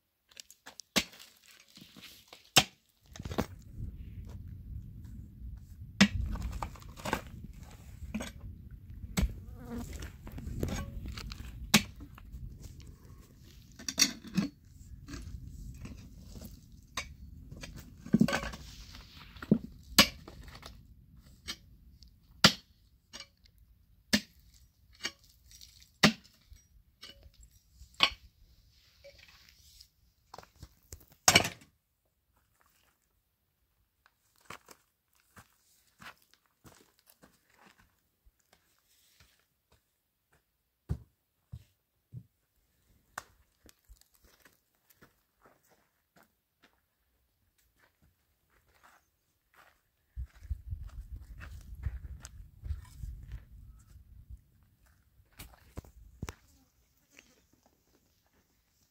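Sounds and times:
pickaxe striking stony ground: 0.6 - 1.5, 2.5 - 3.5, 6.0 - 7.4, 10.4 - 12.1, 19.9 - 20.6, 22.4 - 23.4, 24.1 - 24.4, 26.0 - 27.3, 31.0 - 31.7.

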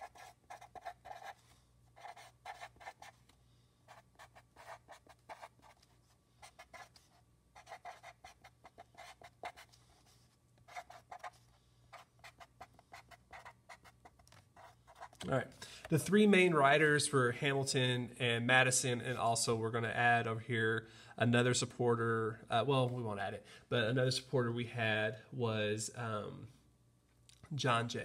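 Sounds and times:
marker scratching on paper: 0.0 - 15.3.

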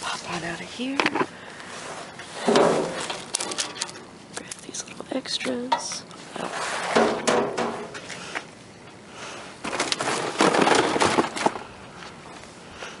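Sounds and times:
dumpster contents crunching: 2.4 - 4.0, 6.4 - 8.0, 9.6 - 11.7.

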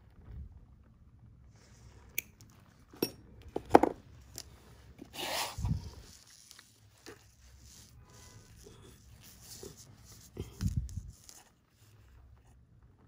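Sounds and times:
brushing rustle: 4.4 - 12.6.

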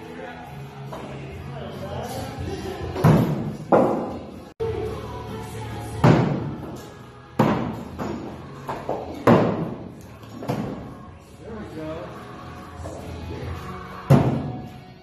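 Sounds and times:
background music: 0.0 - 15.0
axes thudding into wooden boards: 3.0 - 4.2, 6.0 - 6.8, 7.4 - 10.9, 14.1 - 14.6.

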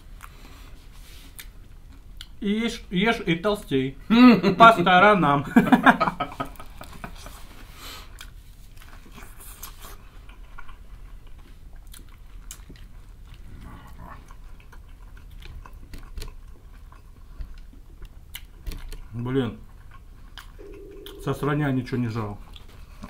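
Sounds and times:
crunchy chewing: 8.1 - 21.2.

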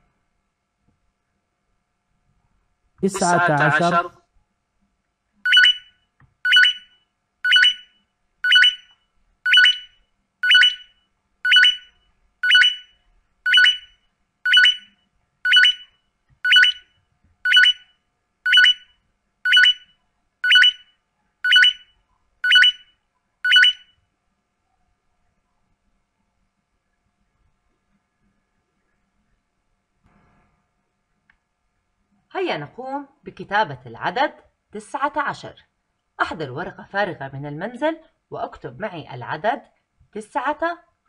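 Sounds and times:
short two-tone electronic beeps: 5.5 - 14.9, 15.5 - 16.9, 17.5 - 17.9, 18.5 - 18.9, 19.5 - 23.9.

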